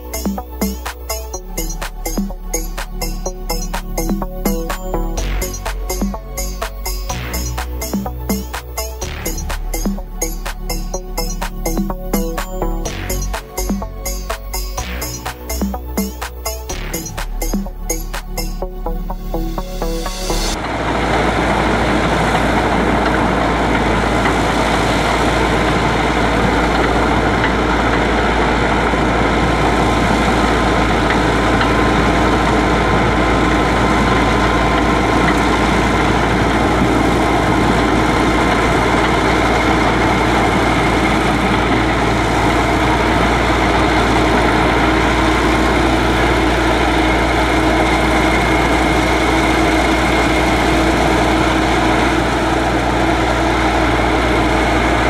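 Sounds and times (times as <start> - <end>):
tractor diesel engine running: 18.7 - 55.0.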